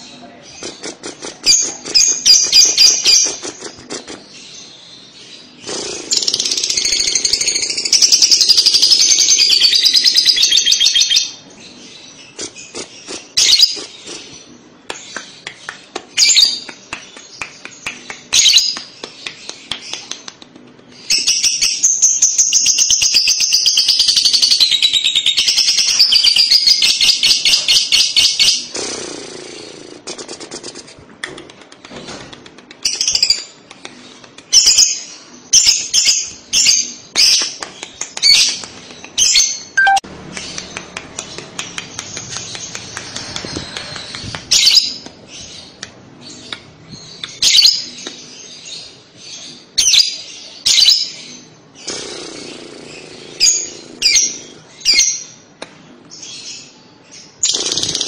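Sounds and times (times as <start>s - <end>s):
bird chirps and clicks: 12.3s - 21.8s, 30.2s - 35.0s, 35.6s - 48.3s
bird chattering trill: 39.2s - 40.6s.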